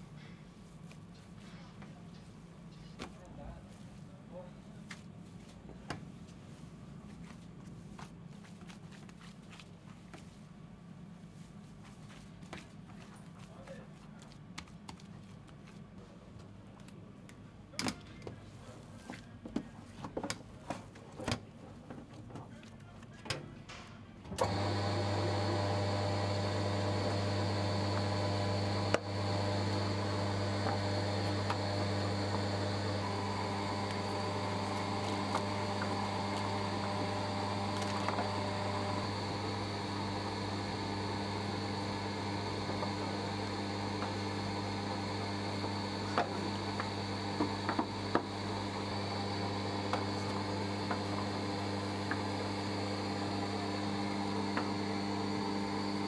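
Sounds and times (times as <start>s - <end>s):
electric machine humming: 24.4s - 56.0s.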